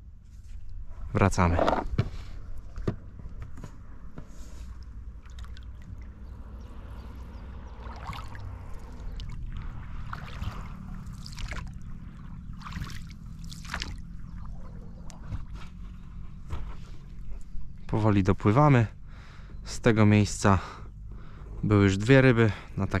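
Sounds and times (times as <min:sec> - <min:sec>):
oars splashing in water: 0:05.1 - 0:16.9.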